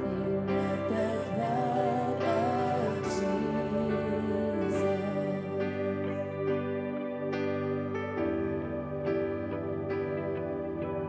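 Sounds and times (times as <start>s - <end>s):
worship band playing slow song: 0.0s - 11.0s.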